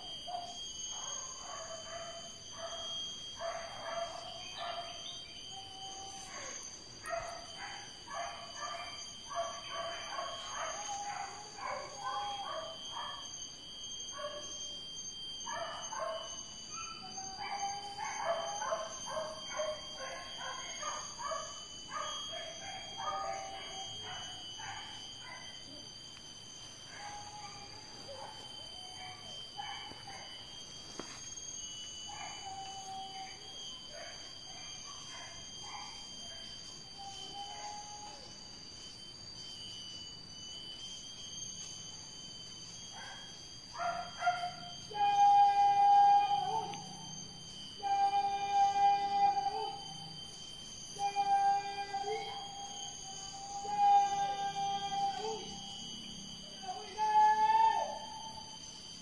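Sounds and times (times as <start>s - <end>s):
steady high-pitched drone: 0.0s - 59.0s
dogs barking and yelping: 0.3s - 5.0s, 6.1s - 13.2s, 15.4s - 25.5s, 42.8s - 47.2s.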